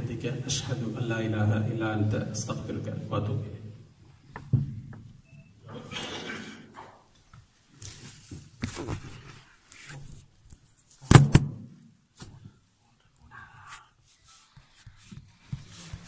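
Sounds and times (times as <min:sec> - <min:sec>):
loud double thump: 0:11.1 - 0:11.6.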